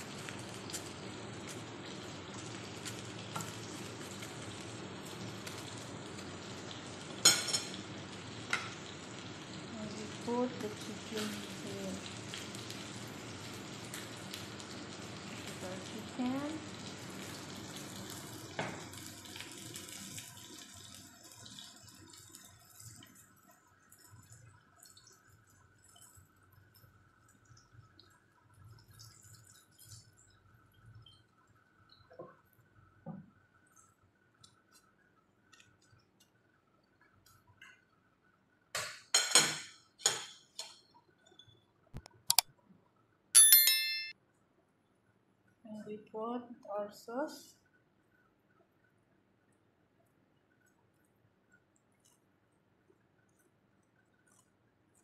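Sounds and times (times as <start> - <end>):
steady kitchen hiss: 0.0 - 43.3, 44.4 - 55.0
sharp click: 42.0 - 42.5.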